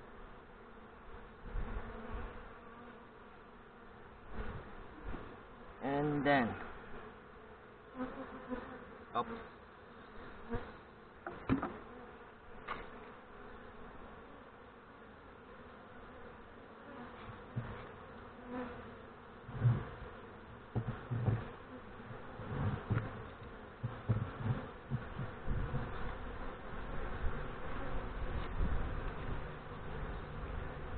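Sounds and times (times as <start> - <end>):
bees buzzing: 0.0 - 30.9
sharp knocks: 11.2 - 11.8, 20.7 - 21.5
soft low thumps on foam box: 20.7 - 21.6, 22.4 - 26.0.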